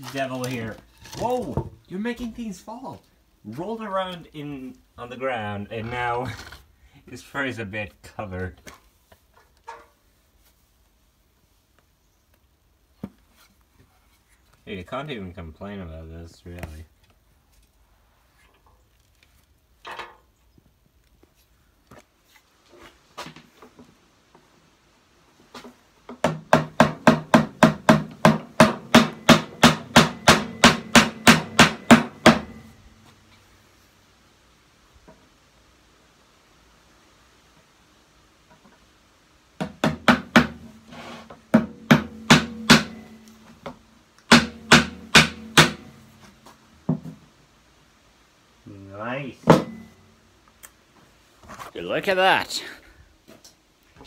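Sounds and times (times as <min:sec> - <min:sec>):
hammer knocking nails into wood: 0:26.2 - 0:32.6, 0:39.6 - 0:40.6, 0:41.6 - 0:43.0, 0:44.3 - 0:45.9.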